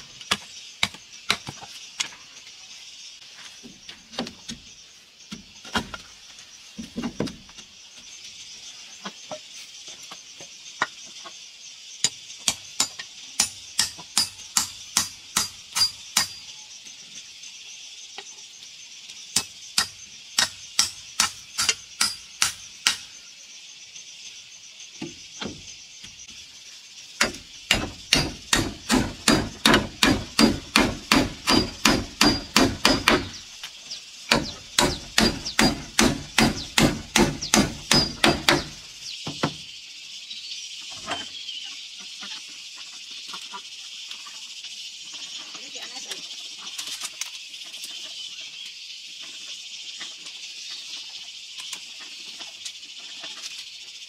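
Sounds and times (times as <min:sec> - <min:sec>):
insects droning: 0:00.0 - 0:54.0
hammer driving nails into wood: 0:27.2 - 0:33.4, 0:34.3 - 0:38.8.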